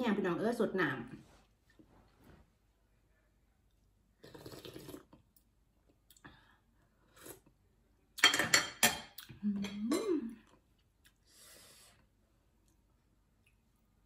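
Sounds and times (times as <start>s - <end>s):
person slurping broth: 4.2s - 5.2s
soft chewing clicks: 12.6s - 13.9s.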